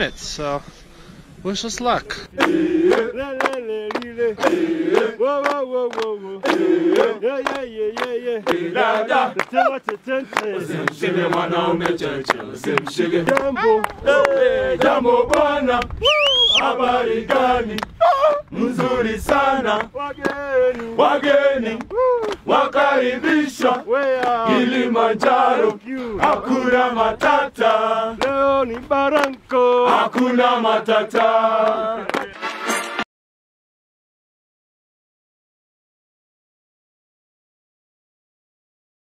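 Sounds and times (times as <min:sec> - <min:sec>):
men singing and chanting: 0:02.0 - 0:32.4
handclaps: 0:02.4 - 0:08.6, 0:09.3 - 0:16.0, 0:17.3 - 0:17.9, 0:18.7 - 0:20.9, 0:21.7 - 0:22.4, 0:23.6 - 0:24.4, 0:25.2 - 0:26.4, 0:28.2 - 0:30.4, 0:31.1 - 0:32.6
high cry: 0:13.5 - 0:14.4, 0:18.0 - 0:18.5, 0:21.9 - 0:22.3.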